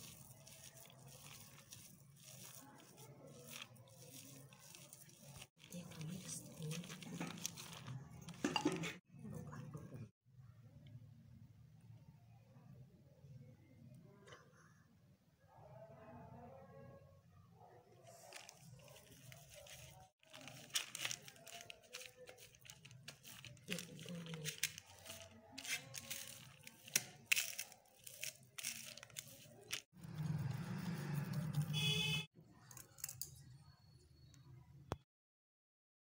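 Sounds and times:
thin sheet crinkling: 0:00.0 - 0:08.5, 0:18.0 - 0:32.0.

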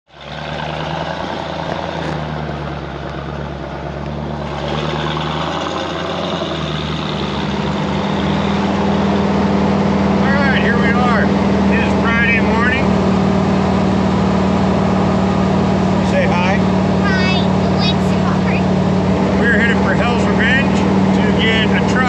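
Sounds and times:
vehicle engine idling: 0:00.1 - 0:22.0.

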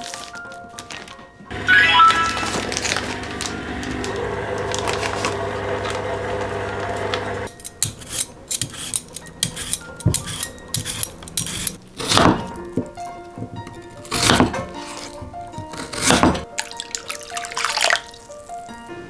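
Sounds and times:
background music: 0:00.0 - 0:03.9, 0:07.5 - 0:19.0
peeler scraping potato skin: 0:07.6 - 0:12.3, 0:14.0 - 0:16.4.

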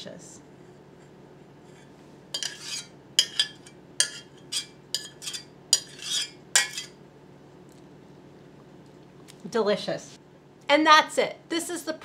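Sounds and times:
spoon scraping metal saucepan: 0:01.6 - 0:07.0.

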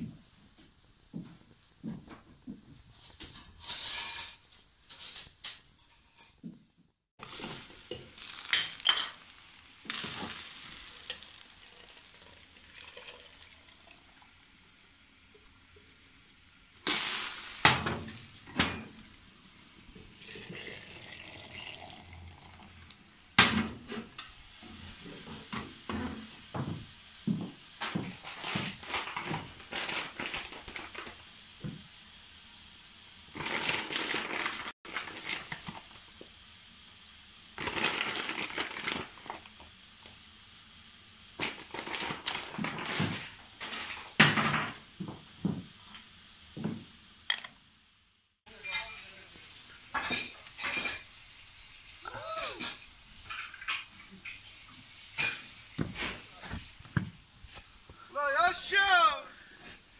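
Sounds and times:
sizzling: 0:00.0 - 0:59.9
wood fire crackling: 0:07.2 - 0:25.5, 0:26.2 - 0:32.2, 0:33.1 - 0:47.3, 0:48.5 - 0:59.9
teapots and lids clinking: 0:07.8 - 0:09.3, 0:48.5 - 0:49.2.

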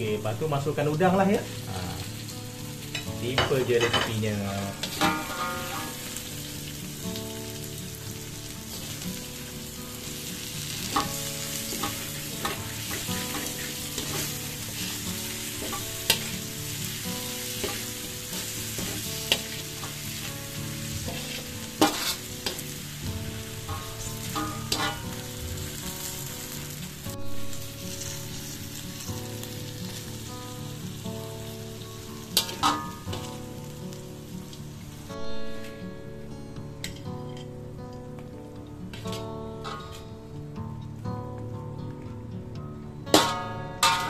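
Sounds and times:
food sizzling in a wok: 0:00.0 - 0:44.0
metal spatula scraping food: 0:10.7 - 0:16.4, 0:20.9 - 0:22.7, 0:23.7 - 0:26.5.

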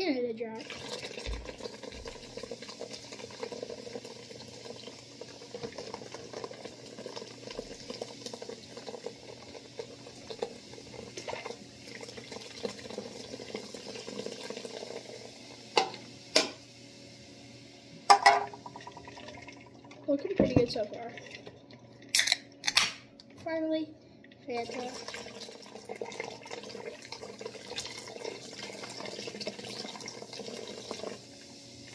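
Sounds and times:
soda fizzing over ice: 0:00.4 - 0:16.1, 0:18.1 - 0:22.1, 0:24.5 - 0:31.9
liquid pouring into bowl: 0:00.6 - 0:15.9, 0:18.1 - 0:22.2, 0:24.5 - 0:31.4.

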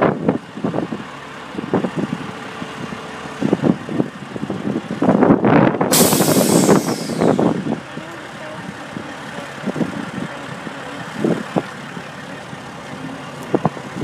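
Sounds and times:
loud hiss: 0:05.9 - 0:07.8.

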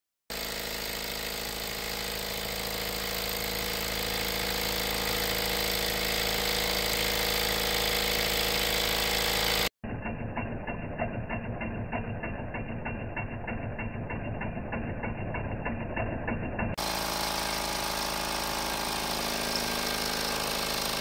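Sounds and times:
engine ticking rhythm: 0:00.3 - 0:21.0
model steam engine hissing: 0:00.4 - 0:09.7, 0:16.8 - 0:21.0.

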